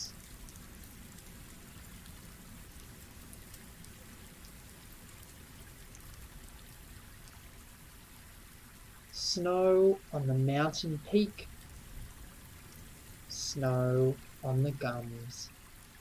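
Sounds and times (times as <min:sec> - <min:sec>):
faint steady hiss: 0:00.0 - 0:16.0.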